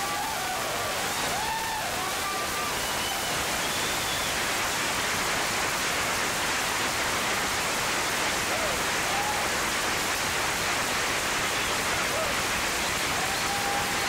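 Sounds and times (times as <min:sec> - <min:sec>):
whoops: 0:00.0 - 0:03.4, 0:08.5 - 0:09.6, 0:12.1 - 0:12.4, 0:13.1 - 0:14.0
audience applauding: 0:00.0 - 0:06.4, 0:08.1 - 0:10.2, 0:10.8 - 0:14.0.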